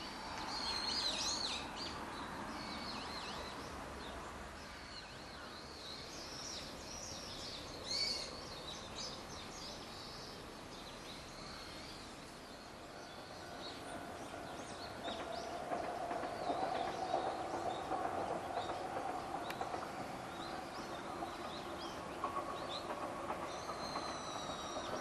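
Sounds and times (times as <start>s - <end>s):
small birds chirping: 0.4s - 25.0s
distant train humming: 6.1s - 25.0s.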